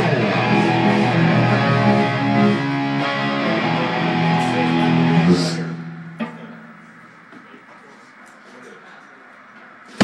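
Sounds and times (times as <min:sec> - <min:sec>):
electric guitars strumming chords: 0:00.0 - 0:06.8.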